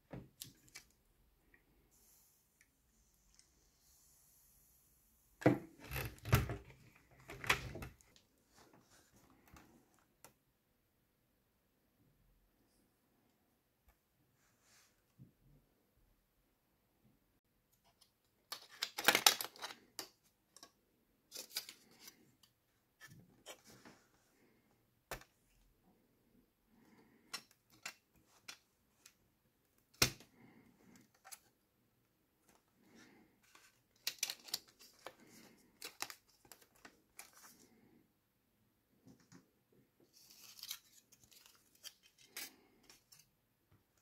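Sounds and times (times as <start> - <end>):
plastic and foil crinkling: 18.5 - 20.2, 33.0 - 37.8, 40.1 - 43.3.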